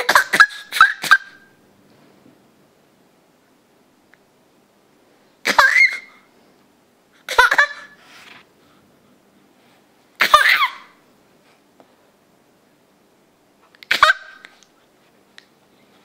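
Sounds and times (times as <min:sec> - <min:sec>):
baby squealing laughs: 0:00.0 - 0:01.5, 0:05.4 - 0:06.2, 0:07.3 - 0:08.0, 0:10.2 - 0:11.0, 0:13.8 - 0:14.5.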